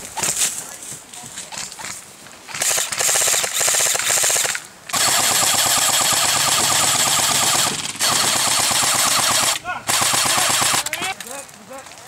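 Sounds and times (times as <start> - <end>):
airsoft rifles firing full auto: 2.5 - 11.2.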